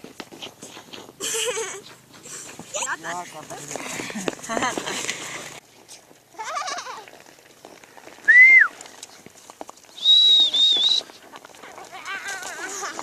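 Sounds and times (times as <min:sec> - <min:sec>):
high wavering whistle-like call: 0:08.3 - 0:08.7, 0:10.0 - 0:11.1.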